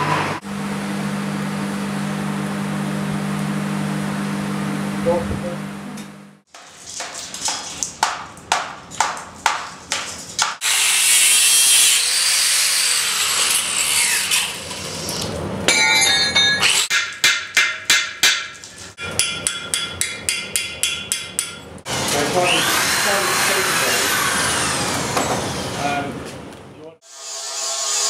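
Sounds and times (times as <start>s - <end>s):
hand tool strikes on metal: 6.5s - 10.6s, 15.7s - 21.9s.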